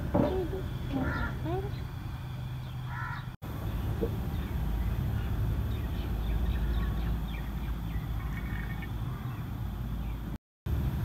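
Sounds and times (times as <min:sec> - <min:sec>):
faint bird chirps: 0:02.6 - 0:09.5.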